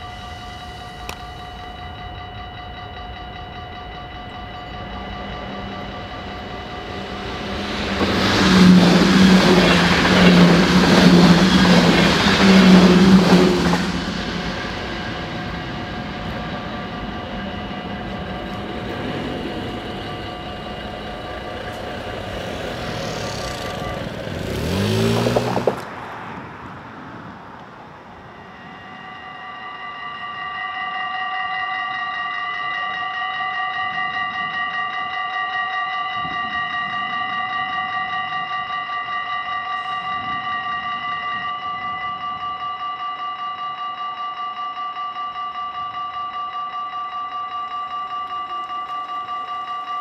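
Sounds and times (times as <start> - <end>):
level crossing bell ringing: 0.0 - 25.4, 28.3 - 50.0
train passing with rushing: 0.0 - 50.0
short rising engine sound: 21.8 - 26.0.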